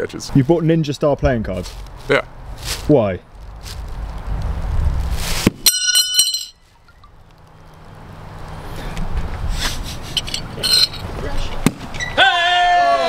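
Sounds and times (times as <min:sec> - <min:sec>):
rustle of handling: 0:01.3 - 0:11.6.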